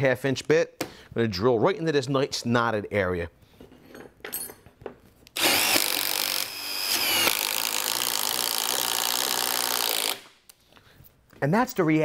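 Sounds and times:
impact driver drilling into wood: 5.4 - 10.3.

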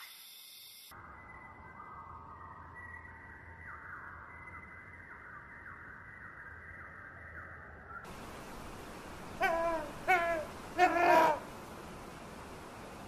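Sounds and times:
outdoor ambient hiss: 0.0 - 4.6, 8.0 - 13.0
birds giving harsh rasping calls: 9.4 - 11.5.

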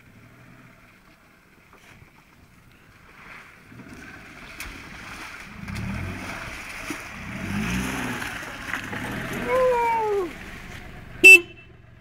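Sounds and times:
small car engine revving: 3.2 - 12.0.

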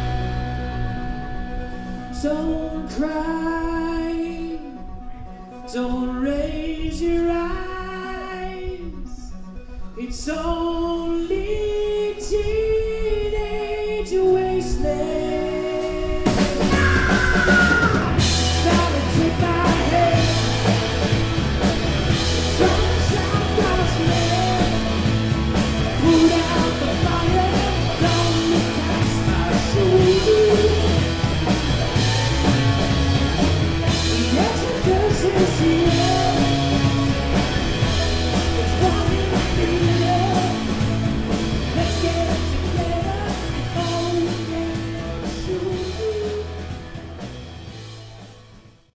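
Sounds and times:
rock band playing: 0.0 - 3.4, 14.9 - 48.9
person singing: 0.0 - 9.4, 10.0 - 46.9.

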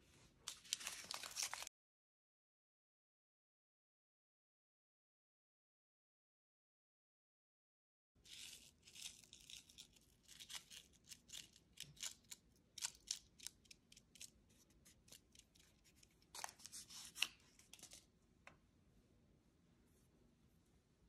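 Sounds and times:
paper sachet crinkling: 0.5 - 1.7.

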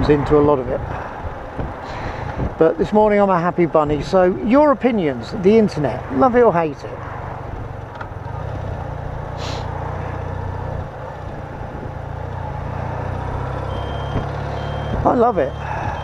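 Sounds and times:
motorcycle engine running: 7.0 - 16.0
short hiss: 9.4 - 9.7
vehicle reversing beeps: 13.6 - 16.0.

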